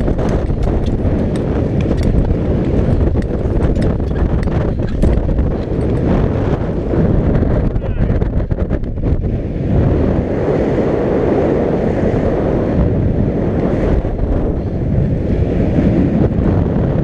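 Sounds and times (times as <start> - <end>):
speed skating on ice: 0.0 - 7.0
wind buffeting camera microphone: 0.0 - 17.0.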